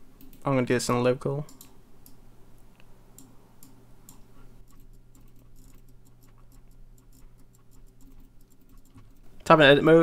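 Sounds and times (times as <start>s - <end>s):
mouse and keyboard clicking: 3.2s - 9.3s.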